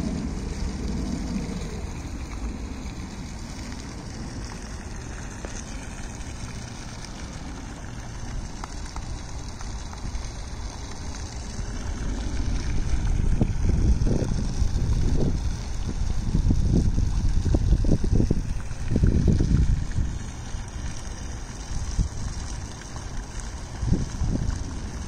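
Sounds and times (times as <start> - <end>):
water hiss: 0.0 - 25.0
wind buffeting microphone: 8.0 - 25.0.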